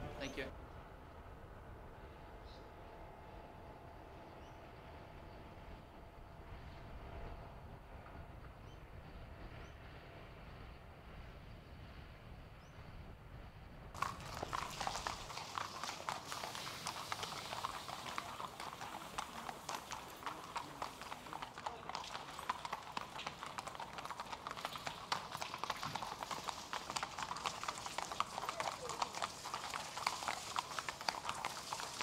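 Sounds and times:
hooves clip-clopping on pavement: 14.0 - 32.0.

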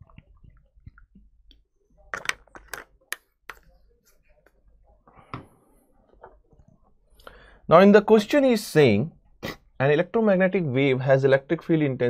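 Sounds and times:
plastic bottle clicks and crinkles: 2.1 - 3.7.

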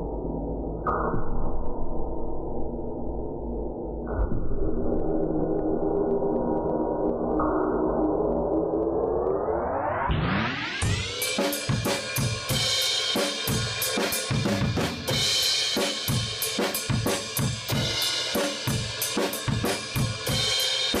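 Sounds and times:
drum kit rock beat: 10.8 - 21.0.

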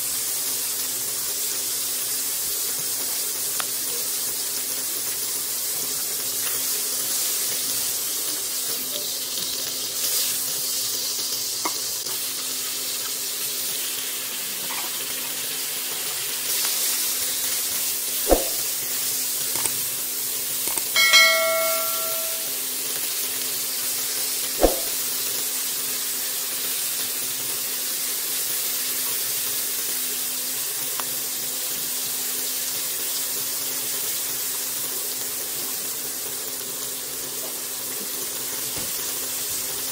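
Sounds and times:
sausage sizzling in wok: 0.0 - 39.9
brief ringing tone: 21.0 - 22.6.

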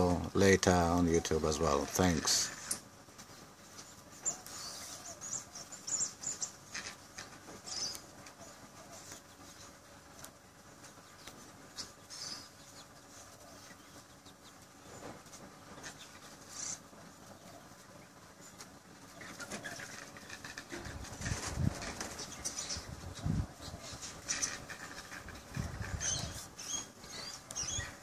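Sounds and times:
wind buffeting microphone: 20.8 - 26.6.

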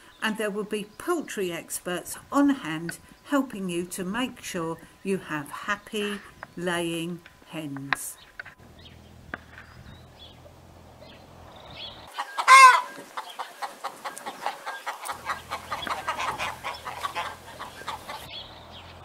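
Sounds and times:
hens clucking: 7.7 - 19.0
hen squawk: 12.1 - 18.3.

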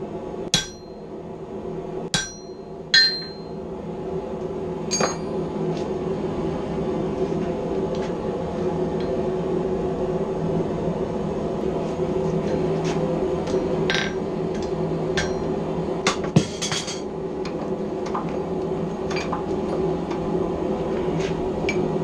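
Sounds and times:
droning hum: 0.0 - 22.0
hammer ringing on chisel: 0.6 - 1.0, 2.2 - 3.5.

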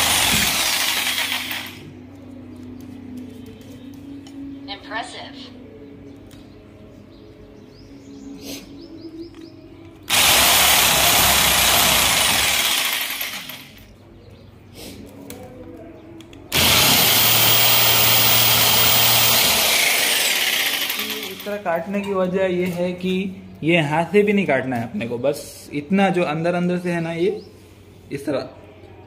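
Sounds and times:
jigsaw rasping through wood: 0.0 - 1.7, 10.1 - 13.6, 16.5 - 21.4
jigsaw motor hum: 0.0 - 1.8, 10.1 - 13.6, 16.5 - 21.4.

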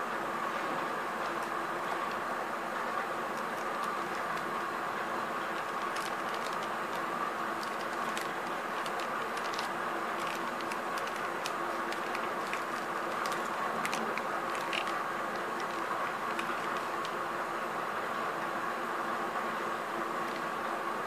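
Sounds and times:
steady background hum: 0.0 - 21.0
plastic wrapper crinkling: 2.9 - 4.8, 5.4 - 17.2.

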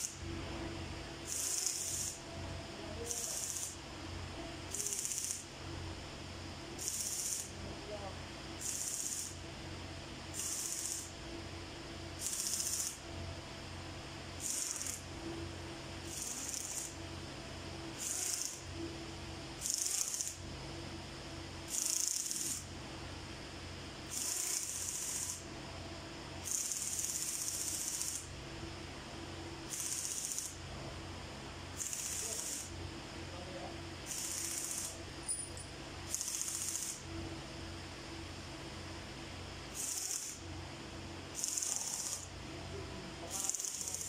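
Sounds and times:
steady low hum: 0.0 - 44.0.

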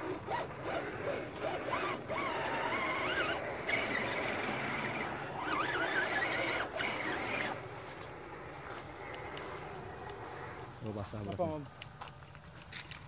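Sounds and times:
wheels churning through muddy water: 0.0 - 7.7
electric motor and gears whining: 0.0 - 13.0.

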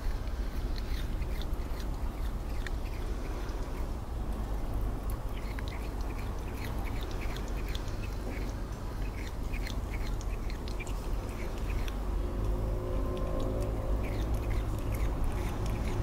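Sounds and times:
cat chewing grass: 0.0 - 16.0
low rumble: 11.0 - 16.0.

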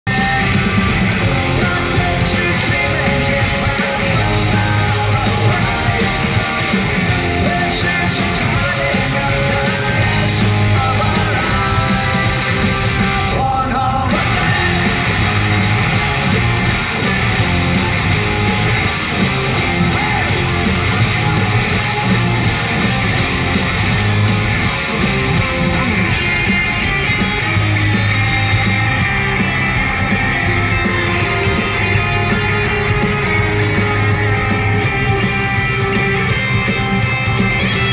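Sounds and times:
loud rock music with singing: 0.0 - 37.9.

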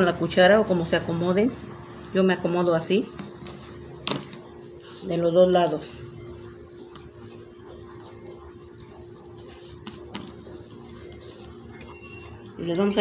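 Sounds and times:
hands rubbing raw fish: 3.2 - 13.0.

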